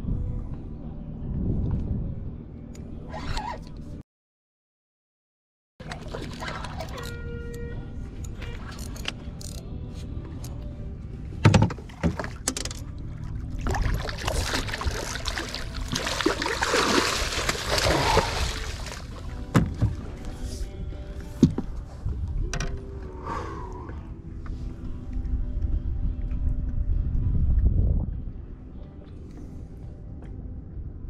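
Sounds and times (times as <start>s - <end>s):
fish thrashing in water: 13.3s - 19.8s.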